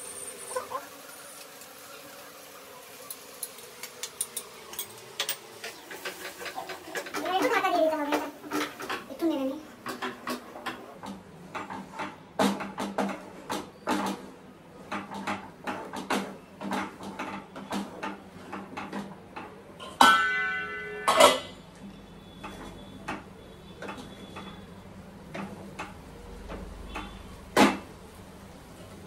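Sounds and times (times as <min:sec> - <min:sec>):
spatula scraping frying pan: 0:03.2 - 0:10.9.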